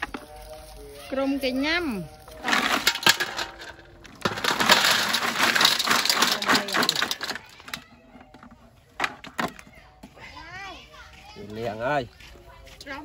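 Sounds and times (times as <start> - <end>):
clam shells clattering: 2.4 - 9.5.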